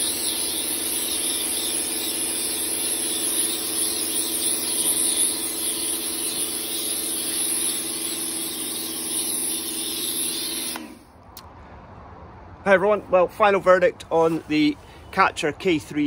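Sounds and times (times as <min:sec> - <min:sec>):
water jet hissing: 0:00.0 - 0:11.0
pressure washer pump humming: 0:00.0 - 0:11.1.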